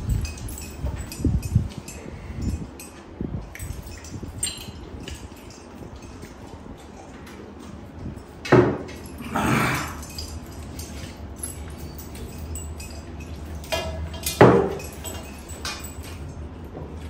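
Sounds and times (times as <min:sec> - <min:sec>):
people eating: 0:09.0 - 0:13.6.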